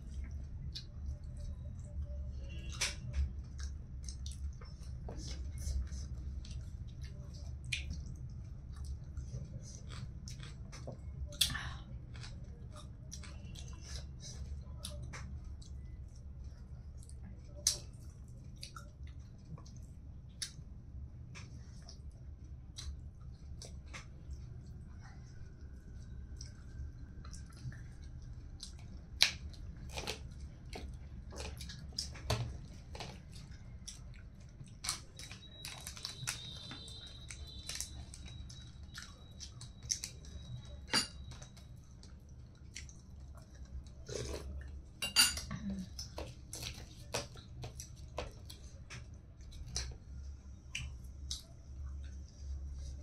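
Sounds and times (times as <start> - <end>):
low steady hum: 0.0 - 53.0
chewing and lip smacks: 0.1 - 20.7, 21.3 - 44.8, 45.9 - 53.0
crunching fried food: 26.0 - 44.9.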